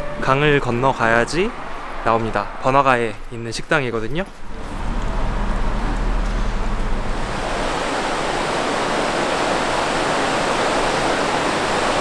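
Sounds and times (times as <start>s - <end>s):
low hum: 4.4s - 9.0s
river water rushing over weir: 4.5s - 12.0s.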